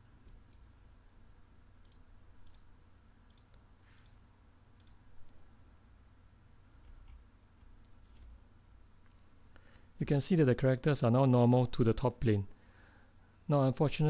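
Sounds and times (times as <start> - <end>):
low steady room hum: 0.0 - 14.0
faint computer mouse clicks: 1.8 - 2.7, 3.3 - 4.2, 4.8 - 5.4.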